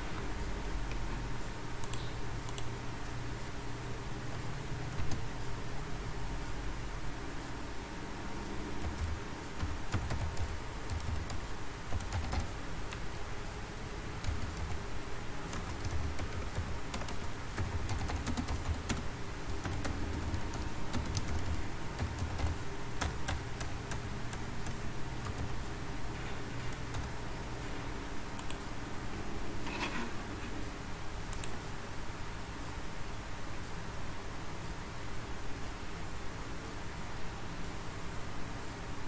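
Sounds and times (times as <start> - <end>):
low background hum: 0.0 - 39.0
computer keyboard typing: 4.9 - 5.3, 8.8 - 13.1, 14.2 - 14.8, 15.5 - 25.6, 26.7 - 27.2.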